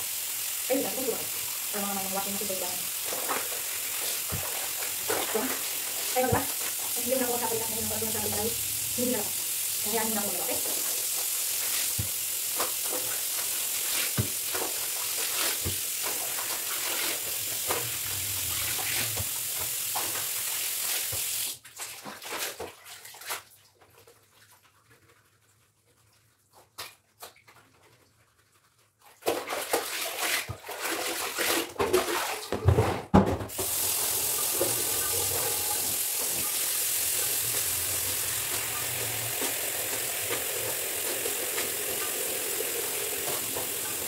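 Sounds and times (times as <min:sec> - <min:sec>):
steady hiss: 0:00.0 - 0:21.2, 0:33.5 - 0:44.0
water splashing: 0:00.0 - 0:23.5, 0:33.5 - 0:44.0.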